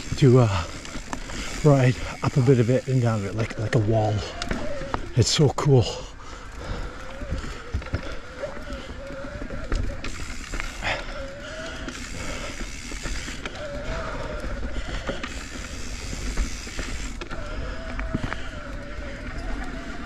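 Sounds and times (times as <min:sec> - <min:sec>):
bike chain and frame clattering: 0:00.0 - 0:20.0
bike tyres on dirt trail: 0:00.0 - 0:20.0.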